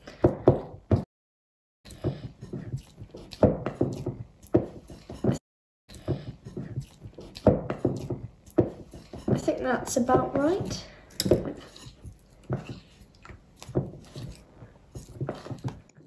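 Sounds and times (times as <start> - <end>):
spoon stirring thick slime: 1.9 - 16.0
spoon knocking and scraping bowl: 10.1 - 12.9.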